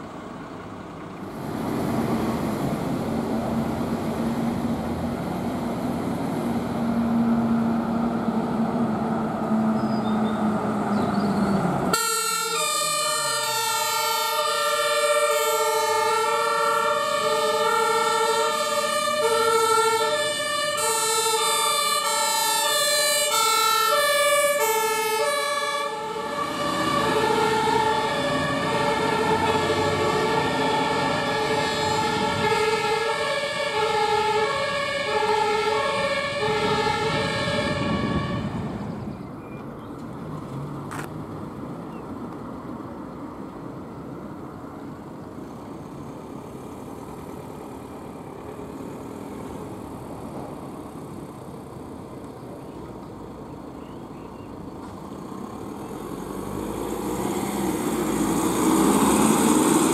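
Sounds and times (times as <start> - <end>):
heavy vehicle engine humming: 0.0 - 59.9
road noise: 0.0 - 59.9
two-tone emergency siren: 11.9 - 38.8.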